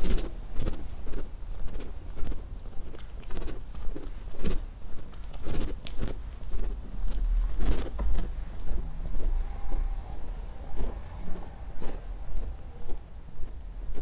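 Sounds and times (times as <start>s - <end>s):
low rumble: 6.2s - 14.0s.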